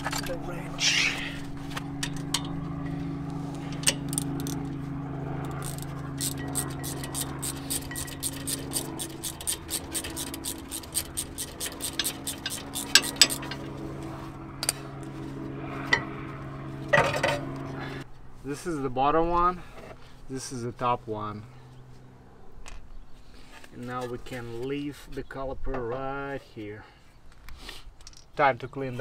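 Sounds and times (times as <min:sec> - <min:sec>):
steady low hum: 0:00.0 - 0:23.7
ratchet wrench clicking: 0:05.5 - 0:13.6
sharp metal clicks: 0:05.5 - 0:13.6.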